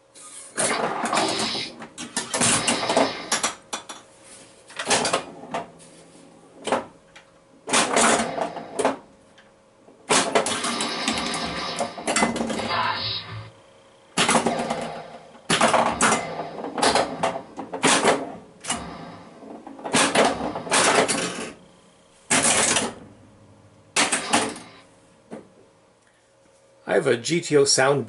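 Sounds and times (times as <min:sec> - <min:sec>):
pinball ball and coils clattering: 0:00.6 - 0:04.0, 0:04.7 - 0:09.1, 0:10.0 - 0:13.5, 0:14.2 - 0:21.7, 0:22.3 - 0:23.2, 0:23.9 - 0:24.8
electronic sound effects: 0:10.5 - 0:13.6.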